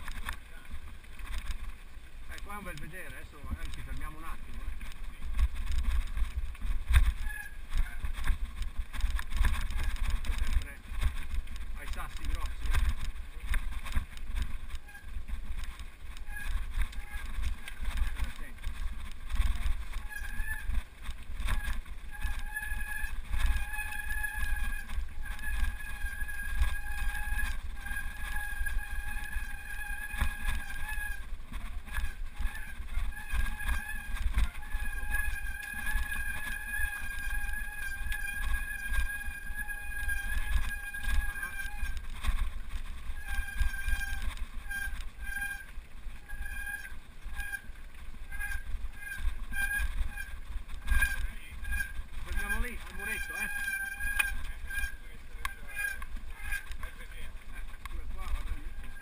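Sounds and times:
low rumble on gravel: 0:00.0 - 0:59.0
wind buffeting microphone: 0:00.0 - 0:59.0
high squeal: 0:32.0 - 0:42.0, 0:48.3 - 0:56.6.

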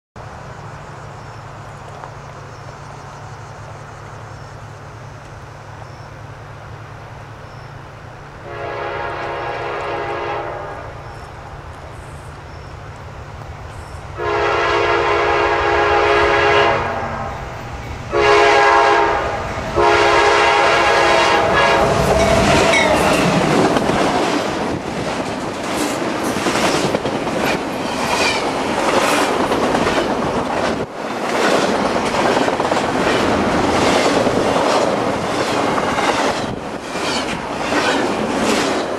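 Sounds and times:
locomotive air horn blasts: 0:08.4 - 0:11.0, 0:14.2 - 0:17.5, 0:18.1 - 0:23.4
train wheels clicking over rails: 0:17.3 - 0:38.9.

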